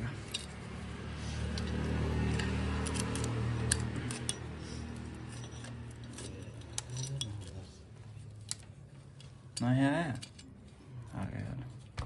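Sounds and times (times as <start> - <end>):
metallic chain clicks and clinks: 5.2 - 7.6.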